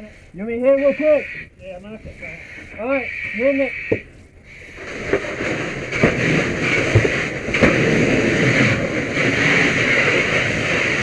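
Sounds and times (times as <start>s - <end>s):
fire hose water rushing: 4.5s - 11.0s.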